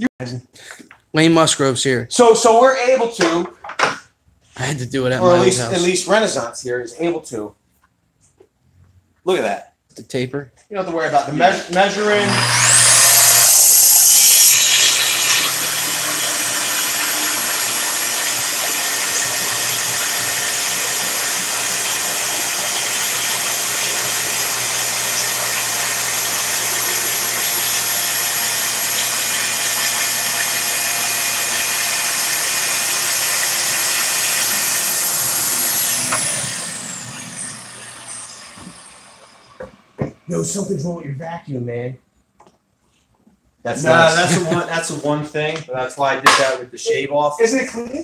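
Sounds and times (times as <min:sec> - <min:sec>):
saw cutting with high whine: 0:05.1 - 0:06.4, 0:11.4 - 0:40.6, 0:43.7 - 0:44.8
dust extractor running: 0:11.5 - 0:40.2.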